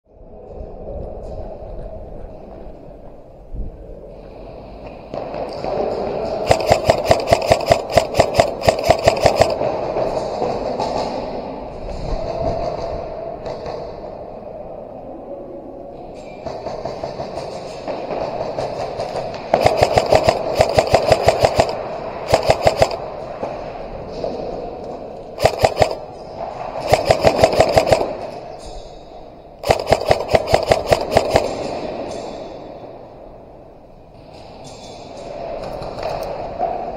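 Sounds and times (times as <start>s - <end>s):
airsoft gun shots: 6.5s - 9.8s, 19.5s - 23.1s, 25.4s - 26.1s, 26.8s - 28.4s, 29.6s - 32.0s.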